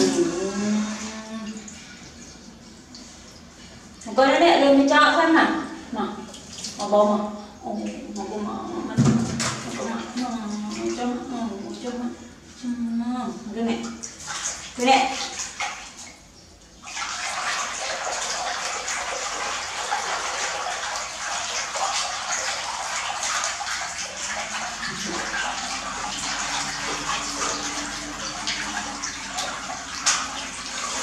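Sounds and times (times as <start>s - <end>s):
hand sloshing water in metal basin: 7.8s - 12.0s, 13.7s - 31.0s.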